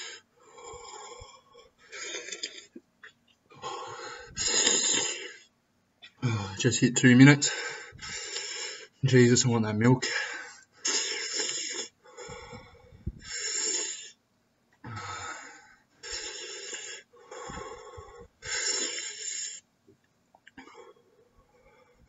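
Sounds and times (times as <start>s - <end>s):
man breathing heavily: 0.0s - 2.7s, 3.5s - 5.5s, 7.4s - 9.0s, 10.0s - 14.2s, 14.8s - 19.7s.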